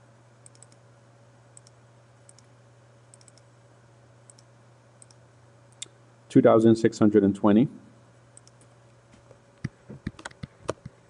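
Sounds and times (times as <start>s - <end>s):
steady low hum: 0.0s - 11.0s
computer mouse clicks: 0.4s - 0.8s, 1.6s - 2.5s, 3.1s - 3.5s, 4.3s - 5.9s, 8.4s - 8.7s.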